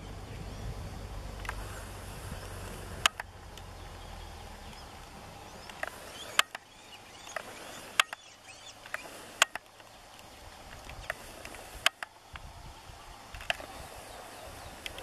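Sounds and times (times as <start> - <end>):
low rumble: 0.0 - 5.7
distant bird calls: 0.0 - 15.0
sharp clicks: 1.4 - 1.7, 2.9 - 3.7, 5.6 - 12.5, 13.3 - 13.7.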